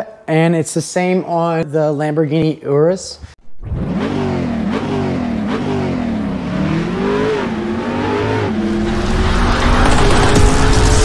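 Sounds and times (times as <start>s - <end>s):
car engine revving: 3.5s - 11.0s.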